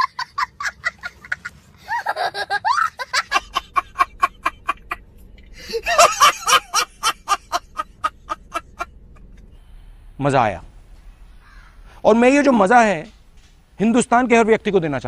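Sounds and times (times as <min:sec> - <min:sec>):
man laughing loudly: 0:00.0 - 0:05.0, 0:05.6 - 0:08.9
small child laughing: 0:00.0 - 0:05.0, 0:05.6 - 0:08.9.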